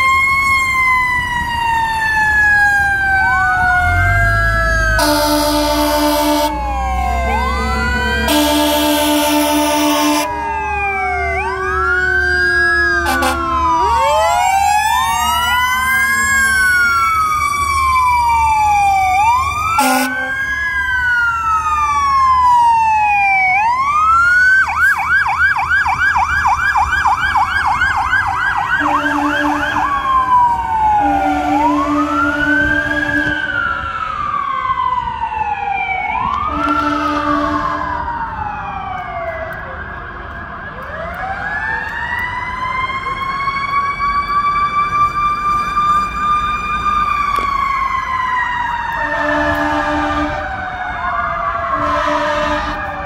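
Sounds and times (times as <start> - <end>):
fire truck sirens wailing: 0.0 - 53.0
horn blasts: 5.0 - 10.4, 13.0 - 13.5, 19.8 - 20.4, 28.8 - 29.9, 31.0 - 33.6, 36.4 - 38.0, 49.0 - 50.5, 51.7 - 53.0.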